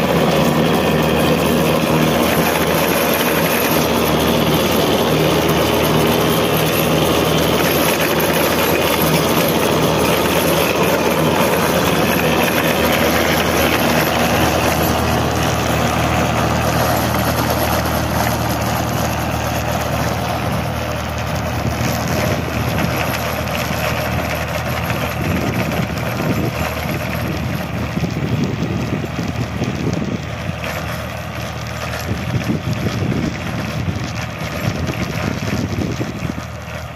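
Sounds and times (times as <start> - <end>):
rotavator churning soil: 0.0 - 36.9
tractor diesel engine under load: 0.0 - 36.9.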